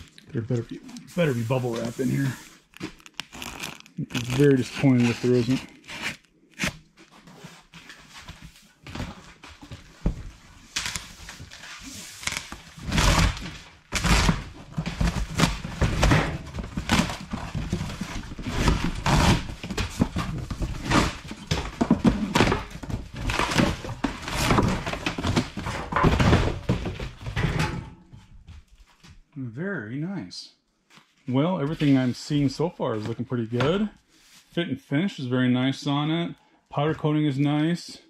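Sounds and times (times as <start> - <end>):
cardboard rustling and scraping: 0.0 - 27.4.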